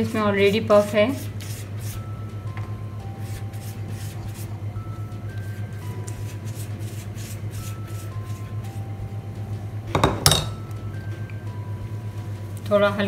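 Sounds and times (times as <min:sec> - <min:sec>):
pastry brush stroking dough: 0:00.0 - 0:02.1, 0:03.2 - 0:04.6, 0:05.3 - 0:08.8
soft background music: 0:00.0 - 0:13.0
steady hum: 0:00.0 - 0:13.0
utensil clinking against dish: 0:10.0 - 0:10.6.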